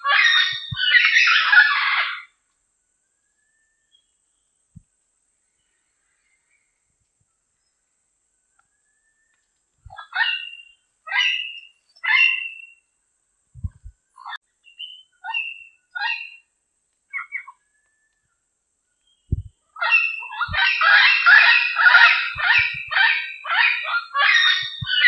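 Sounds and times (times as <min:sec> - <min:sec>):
parrot harsh calls: 0:00.0 - 0:02.3, 0:09.9 - 0:12.8, 0:15.2 - 0:16.4, 0:19.8 - 0:25.0.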